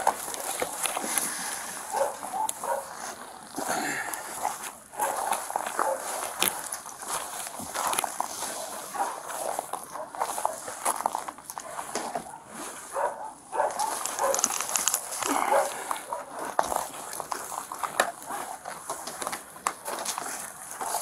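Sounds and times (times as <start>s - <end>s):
dog barking and whining: 1.9s - 2.9s, 5.0s - 6.1s, 12.2s - 14.4s, 15.3s - 16.5s.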